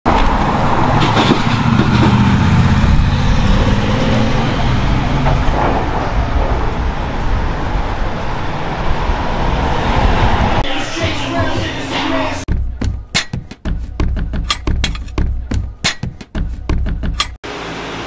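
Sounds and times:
road noise: 0.0s - 18.0s
vehicle engine running close: 0.2s - 13.1s.

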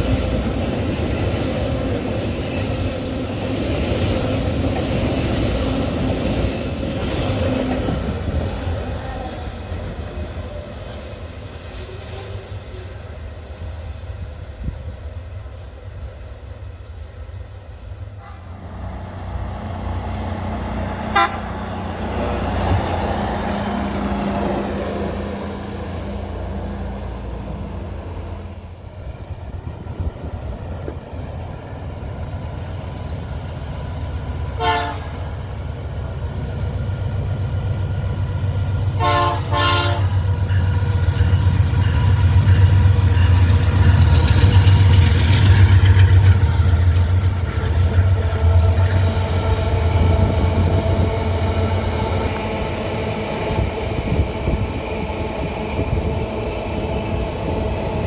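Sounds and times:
diesel train rumble: 0.0s - 58.0s
train horn blasts: 18.2s - 18.6s, 21.1s - 21.7s, 34.6s - 35.3s, 38.9s - 40.2s.

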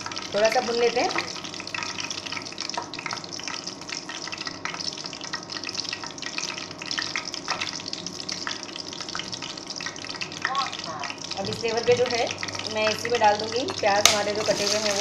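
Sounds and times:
spices sizzling in hot oil: 0.0s - 15.0s.

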